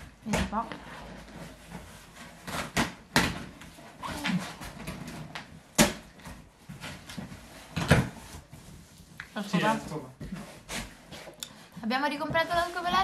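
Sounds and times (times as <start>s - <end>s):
cardboard rustling: 11.9s - 13.0s.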